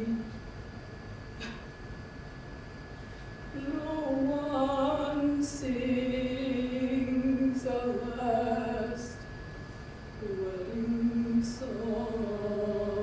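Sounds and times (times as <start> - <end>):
woman singing a slow chant: 0.0 - 0.4, 3.5 - 9.3, 10.2 - 13.0.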